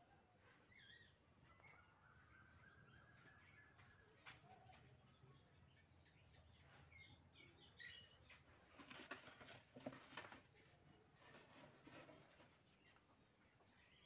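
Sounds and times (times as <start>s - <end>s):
high bird chirps: 0.7s - 4.0s.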